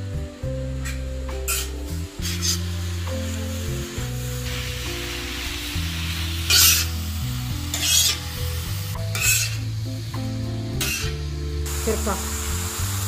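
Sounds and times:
vegetables sizzling on griddle: 0.4 - 13.0
metal spatulas scraping: 0.8 - 2.7, 6.5 - 7.0, 7.7 - 8.4, 9.1 - 9.7, 10.8 - 11.2.

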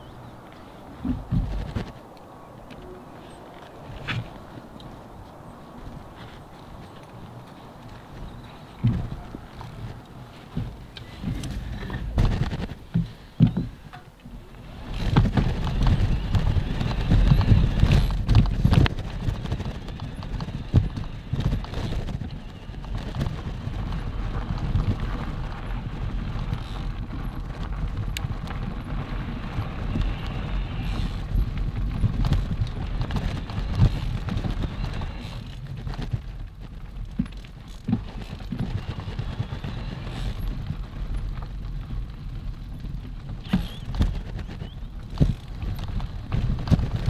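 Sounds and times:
steady low rumble: 0.0 - 35.2
bike rattling over bumps: 0.0 - 47.0
bike tyres crunching on gravel: 0.0 - 47.0.

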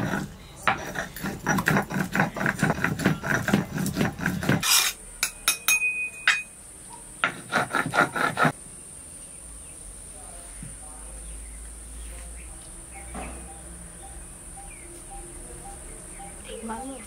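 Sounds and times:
stone pestle grinding on stone: 0.0 - 5.7, 7.2 - 8.6.

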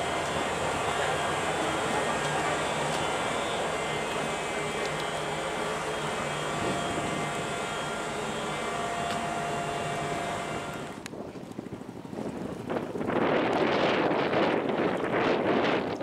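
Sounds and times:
ship machinery hum: 0.0 - 11.1
wind rustle: 0.0 - 16.0.

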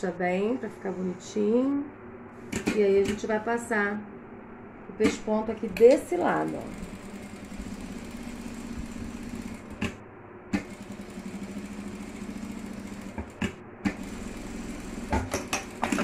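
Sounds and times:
sewing machine running: 5.6 - 9.9, 10.5 - 16.0.

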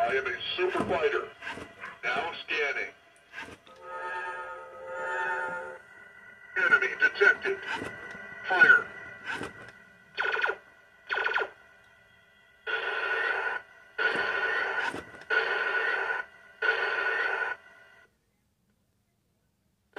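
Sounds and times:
harsh noisy electronic blasts: 10.1 - 11.6, 12.6 - 17.6.

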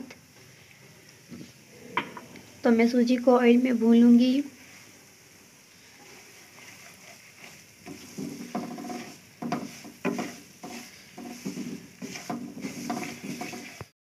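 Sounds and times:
faint sizzle: 0.0 - 13.9
spatula stirring and scraping: 5.7 - 13.9.

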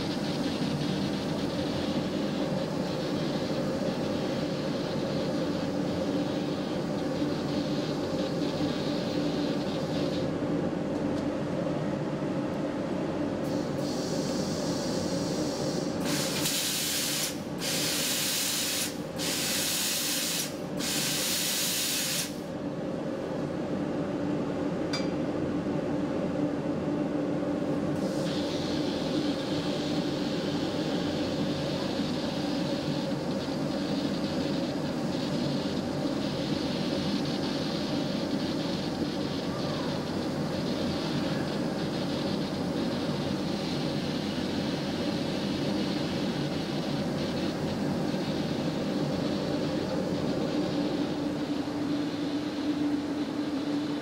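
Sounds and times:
spray gun hissing: 0.0 - 10.3, 13.5 - 22.5, 28.0 - 54.0
steady machine drone: 0.0 - 10.9, 28.0 - 54.0.

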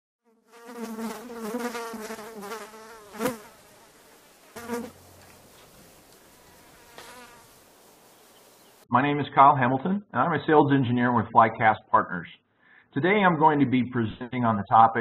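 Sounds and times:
fly buzzing: 0.2 - 8.8.

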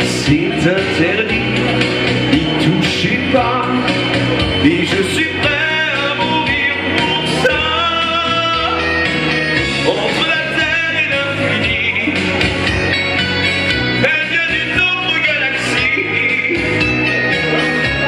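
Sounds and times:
pop backing music: 0.0 - 18.0.

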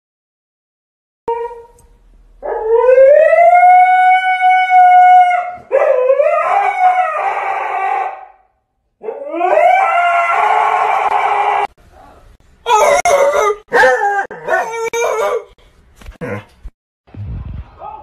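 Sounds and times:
dog howling: 2.4 - 8.4, 9.0 - 11.7, 12.7 - 15.6.

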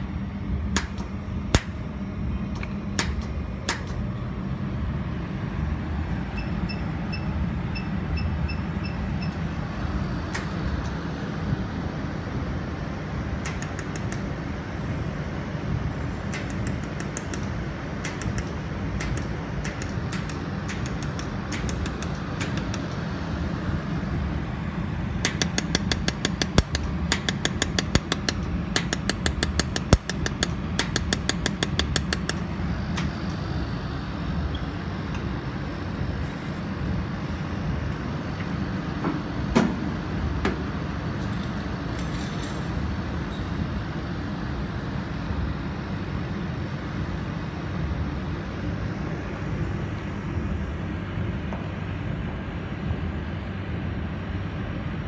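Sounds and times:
cooling fans humming: 0.0 - 55.0
laser welder clicks: 0.7 - 1.8, 2.5 - 4.0, 10.3 - 11.0, 13.4 - 14.3, 16.2 - 23.0, 25.2 - 33.4.

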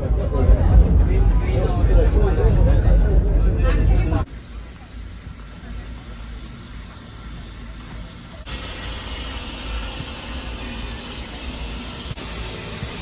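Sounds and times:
steam locomotive idling hiss: 4.3 - 13.0.

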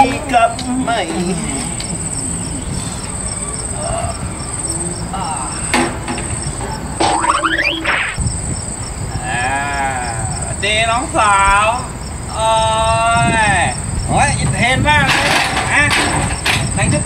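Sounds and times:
crickets chirping: 0.0 - 17.0
short rising squeal: 7.0 - 8.3.

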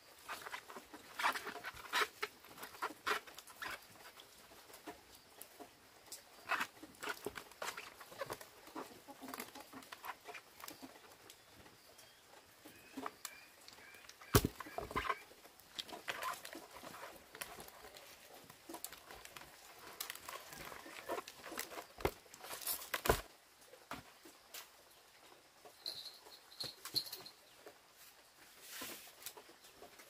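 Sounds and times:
chickens clucking: 0.1 - 21.9.

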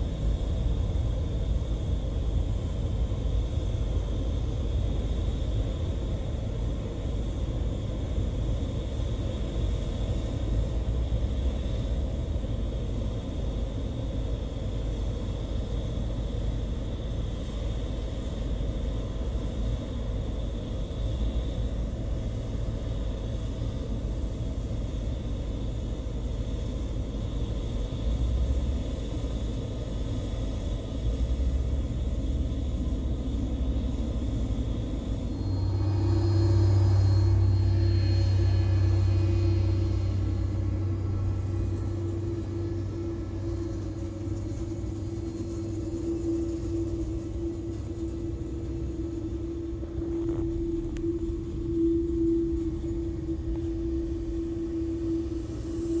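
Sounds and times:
jet engines idling: 0.0 - 56.0.

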